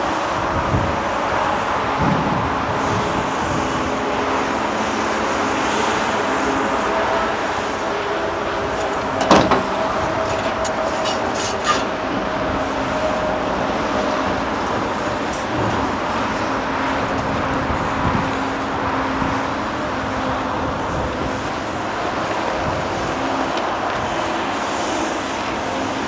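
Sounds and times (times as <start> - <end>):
excavator diesel engine running: 0.0 - 26.0.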